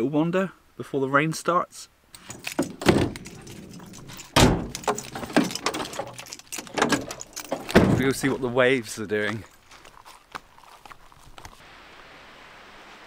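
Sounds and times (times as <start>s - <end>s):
van doors clicking and clunking: 2.2s - 8.4s
van doors thumping shut: 2.3s - 8.3s.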